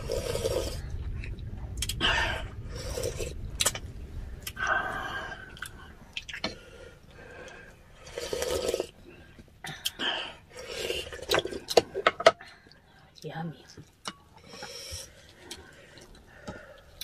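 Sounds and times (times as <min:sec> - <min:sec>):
chewing and slurping: 0:07.4 - 0:09.0, 0:10.6 - 0:12.0.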